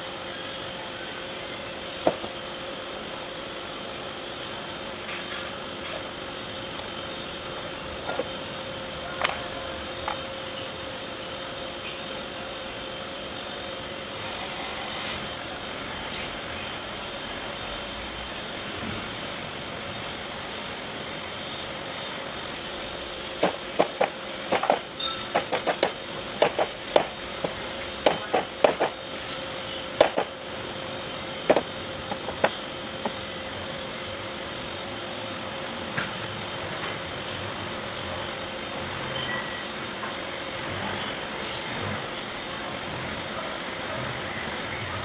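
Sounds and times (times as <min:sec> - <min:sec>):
steady background hum: 0:00.0 - 0:45.0
metallic taps and clinks: 0:30.0 - 0:30.3.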